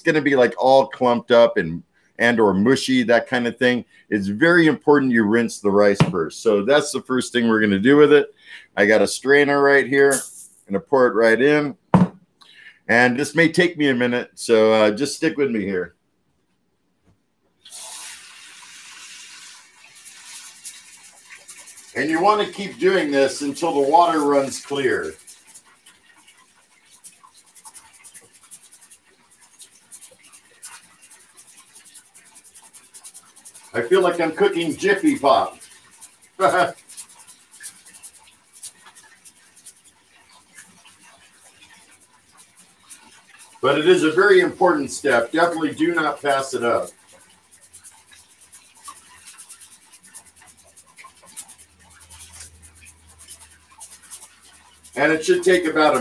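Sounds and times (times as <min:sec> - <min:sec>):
tap water running: 0:02.2 - 0:13.3, 0:17.6 - 0:56.0
rice rattling in a strainer: 0:09.0 - 0:10.7, 0:17.7 - 0:56.0.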